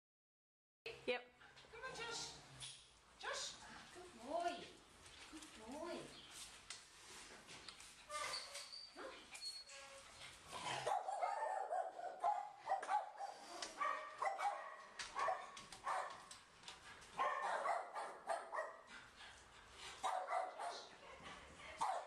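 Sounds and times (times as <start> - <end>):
dog barking and yelping: 10.6 - 16.3, 17.2 - 18.9, 20.0 - 20.9, 21.8 - 22.0.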